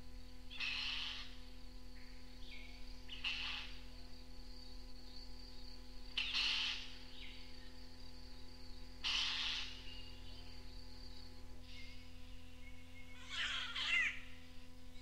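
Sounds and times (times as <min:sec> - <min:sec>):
high insect drone: 0:00.0 - 0:15.0
bird harsh calls: 0:00.5 - 0:01.4, 0:03.1 - 0:03.8, 0:06.2 - 0:07.3, 0:09.0 - 0:10.2, 0:11.6 - 0:14.5.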